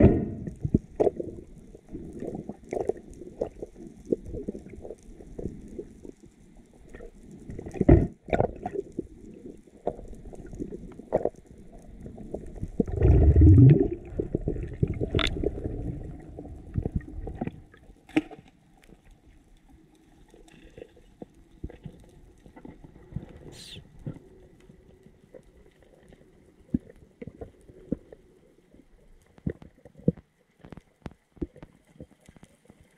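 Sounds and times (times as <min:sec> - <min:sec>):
knocks and clicks underwater: 0:00.0 - 0:19.4, 0:20.2 - 0:28.3, 0:29.1 - 0:32.9
muffled underwater water rumble: 0:00.0 - 0:32.9
loud water gurgling surge: 0:12.8 - 0:16.5.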